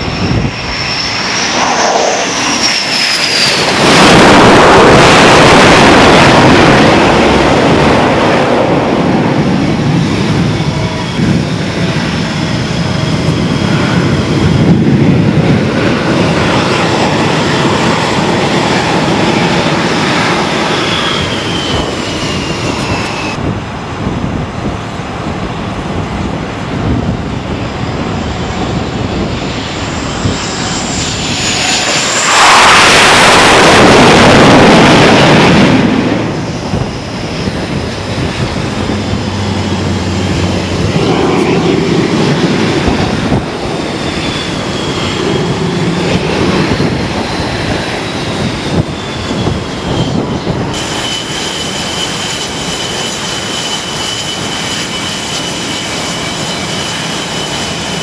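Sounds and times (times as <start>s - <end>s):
high steady jet whine: 0.0s - 58.0s
jet landing roar: 0.0s - 58.0s
jets taxiing rumble and whine: 0.0s - 58.0s.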